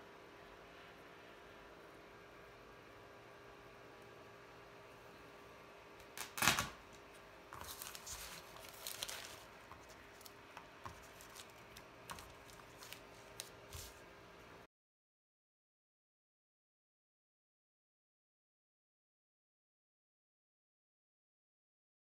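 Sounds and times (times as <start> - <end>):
plastic bag rustling and crinkling: 7.6 - 14.0.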